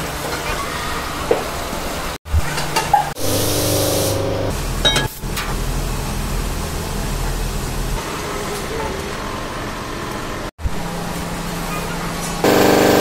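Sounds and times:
low motor hum: 2.3 - 8.0, 12.4 - 13.0.

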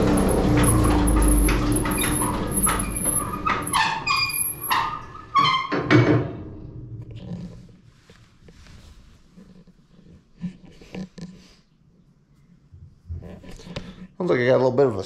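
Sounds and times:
motor and blower running down: 0.0 - 3.7
high auger squeaks: 0.0 - 5.7.

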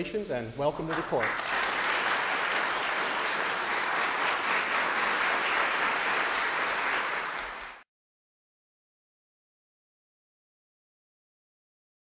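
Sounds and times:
crowd applauding: 0.9 - 7.8.

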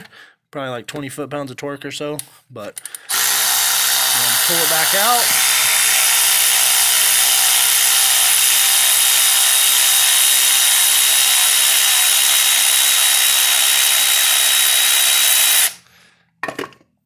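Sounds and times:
electric ratchet running: 2.9 - 15.8.

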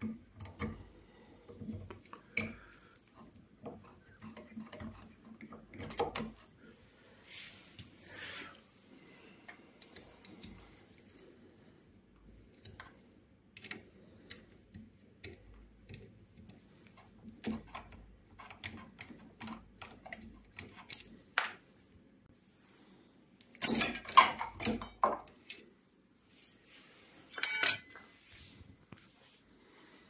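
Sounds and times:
small metal clicks and clinks: 27.3 - 28.0.

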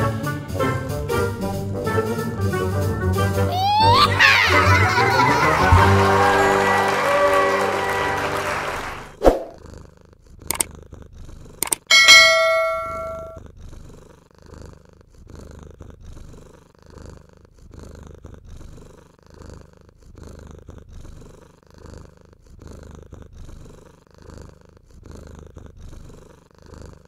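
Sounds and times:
cat purring: 9.5 - 27.0
bell-like chime: 11.9 - 13.4.

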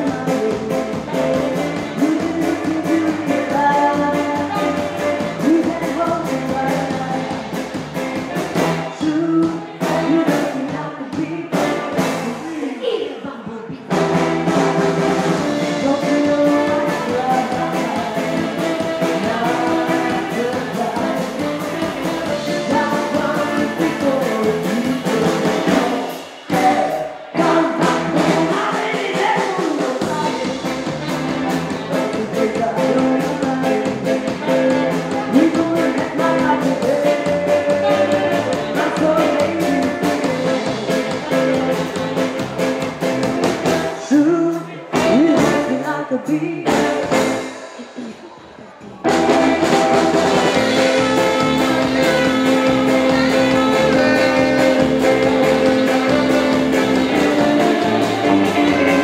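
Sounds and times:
saxophone: 0.0 - 7.2, 13.9 - 28.7, 30.0 - 44.0, 49.1 - 59.0
woman singing: 0.0 - 7.5, 8.9 - 13.9, 15.4 - 41.8, 44.0 - 47.1, 49.1 - 59.0
electric guitar: 0.0 - 12.7, 13.8 - 29.2, 30.0 - 48.3, 49.0 - 59.0
drums: 0.0 - 59.0.

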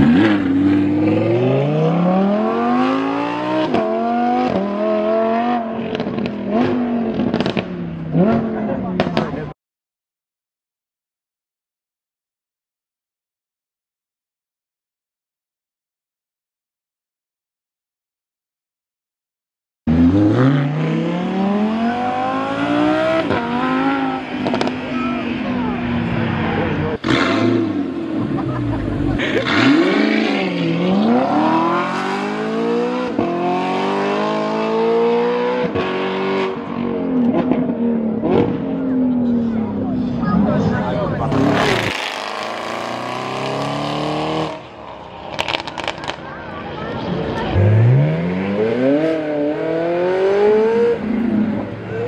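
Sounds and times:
sports car accelerating with upshifts: 0.0 - 9.5, 19.9 - 46.4, 47.0 - 52.0
exhaust crack: 44.5 - 48.9.

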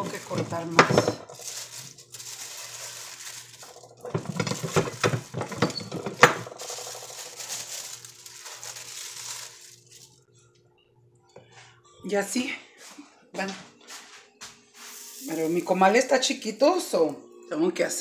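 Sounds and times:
plastic bag crinkling: 0.0 - 10.2, 14.9 - 16.0.

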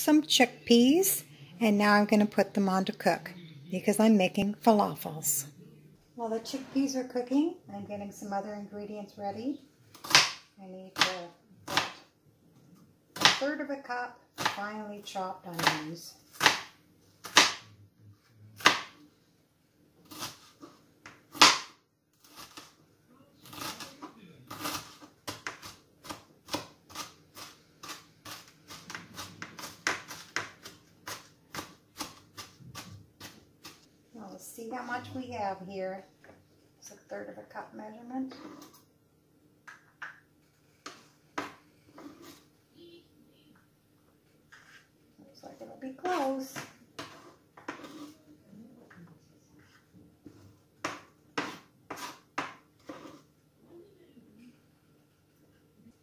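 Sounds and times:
knife chopping on cutting board: 10.0 - 12.0, 16.4 - 17.7, 18.6 - 19.0, 20.1 - 21.8, 24.5 - 33.8, 40.8 - 42.4, 46.6 - 48.1, 50.3 - 53.2.

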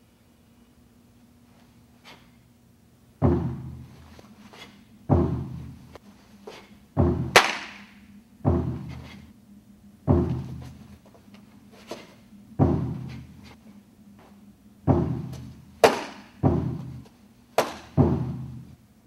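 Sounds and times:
sharp snap: 7.4 - 7.9.

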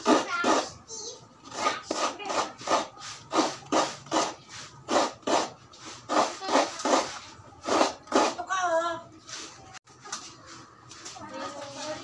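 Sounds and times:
coconut being grated by hand: 0.0 - 0.8, 1.4 - 8.5.

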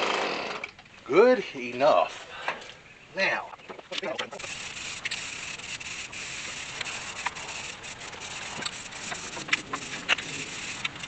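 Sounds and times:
spray-paint can hissing: 4.4 - 11.0.

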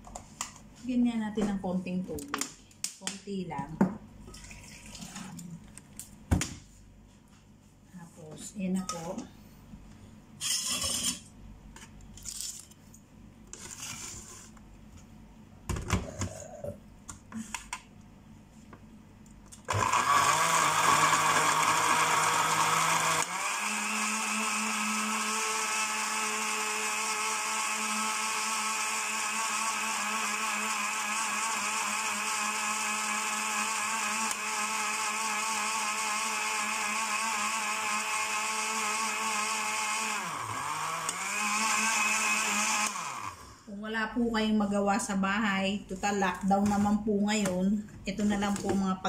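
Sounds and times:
electric blender running: 19.7 - 43.7.

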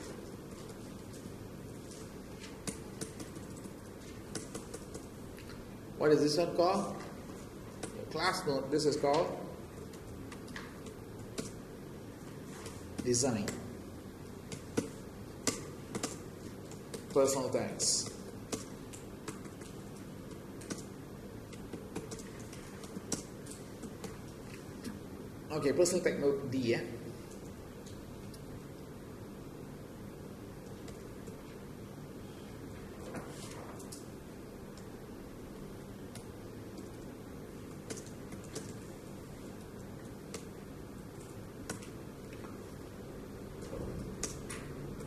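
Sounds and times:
low room hum: 0.0 - 45.0
fingers tapping on touchscreen: 2.4 - 5.5, 14.4 - 17.3, 18.0 - 24.6.

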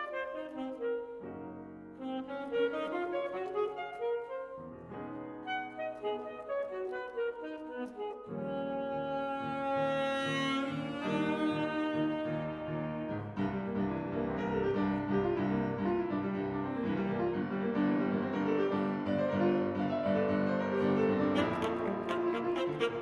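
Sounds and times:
saxophone holding long notes: 0.0 - 4.8, 5.4 - 13.4, 21.2 - 23.0
piano playing: 0.0 - 23.0.

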